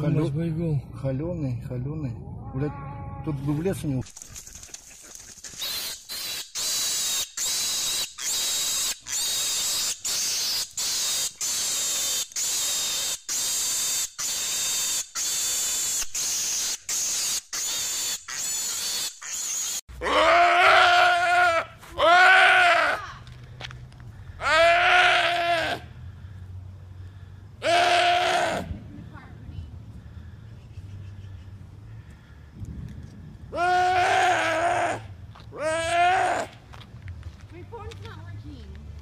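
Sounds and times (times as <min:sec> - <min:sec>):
animal high-pitched cries: 0:17.6 - 0:23.0, 0:24.4 - 0:25.8, 0:27.6 - 0:28.7
deer bleating: 0:20.0 - 0:23.1, 0:24.4 - 0:25.9, 0:27.6 - 0:28.6.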